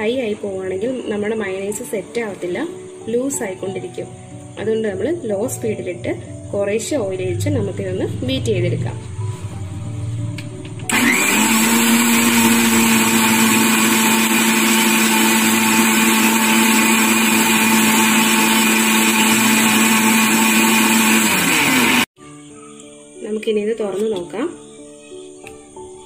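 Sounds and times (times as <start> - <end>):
mixer grinder motor whining: 10.6 - 22.2.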